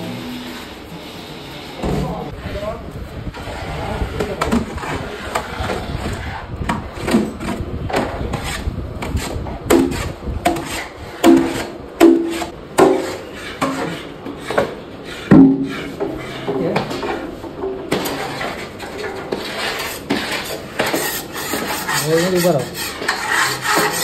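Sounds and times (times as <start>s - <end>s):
utensil scraping a pan: 3.3s - 24.0s.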